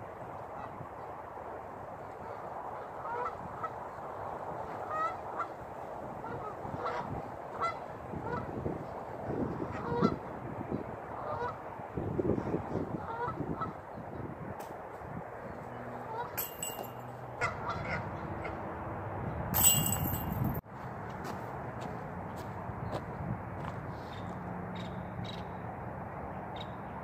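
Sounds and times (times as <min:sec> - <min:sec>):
geese honking: 0:09.6 - 0:10.2, 0:11.2 - 0:11.6, 0:12.4 - 0:13.8, 0:15.6 - 0:16.4, 0:17.4 - 0:18.6.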